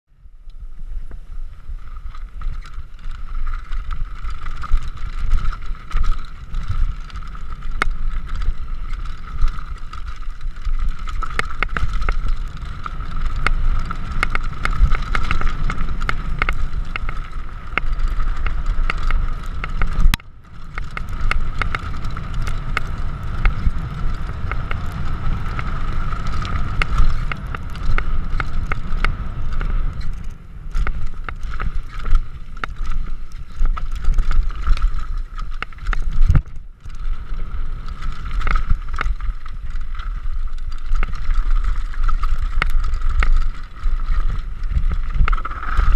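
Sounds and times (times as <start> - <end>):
wind rumble on microphone: 0.1 - 45.9
bike clicks and rattles: 0.5 - 45.9.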